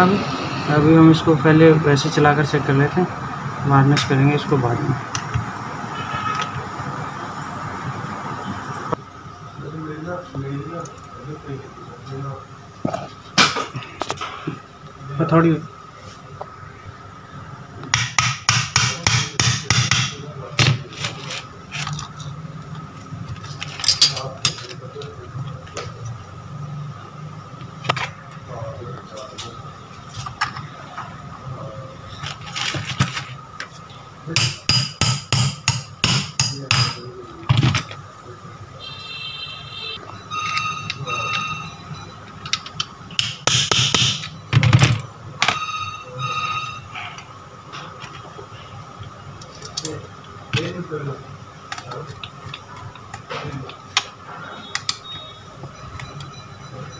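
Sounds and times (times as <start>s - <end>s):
small hammer tapping on metal: 34.4s - 37.0s, 43.2s - 44.4s.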